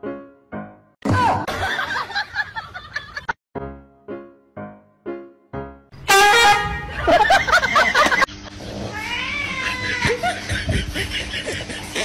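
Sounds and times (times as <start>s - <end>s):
cat yowling: 8.8s - 10.2s.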